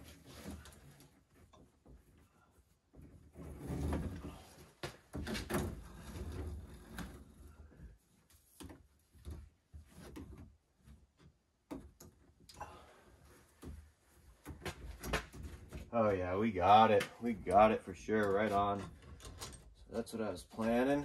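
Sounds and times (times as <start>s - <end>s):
wire rustling and scraping: 0.0s - 10.5s.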